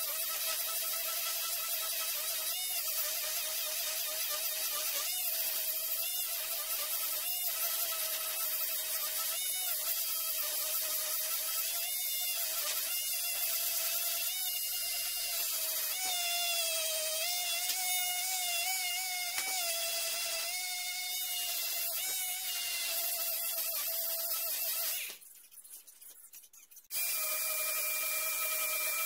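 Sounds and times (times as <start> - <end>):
electric sander on wood: 0.0 - 25.2, 26.9 - 29.0.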